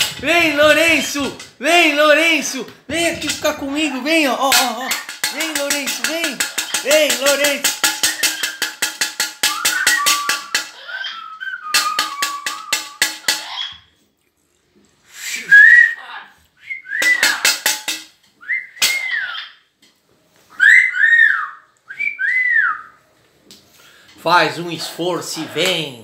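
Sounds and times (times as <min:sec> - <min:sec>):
short rising and falling whistles: 0:09.5 - 0:10.5, 0:15.1 - 0:16.0, 0:20.6 - 0:23.0.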